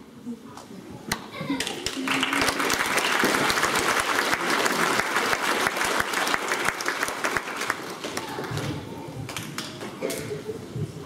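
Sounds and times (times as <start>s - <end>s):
children applauding: 1.6s - 9.4s.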